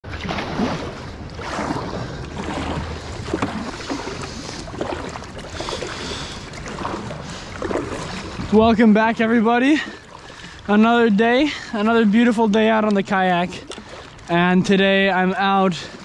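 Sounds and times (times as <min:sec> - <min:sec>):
small splashes: 0:00.0 - 0:09.0, 0:12.6 - 0:14.4
paddle dipping into water: 0:00.0 - 0:16.0
water rushing along hull: 0:00.0 - 0:16.0.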